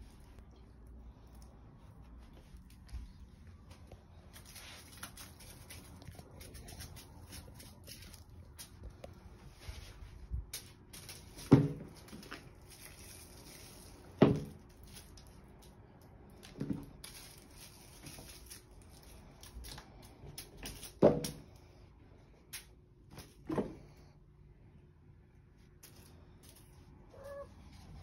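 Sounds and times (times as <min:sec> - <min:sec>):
crinkly toy rustling and crackling: 0:00.0 - 0:21.0.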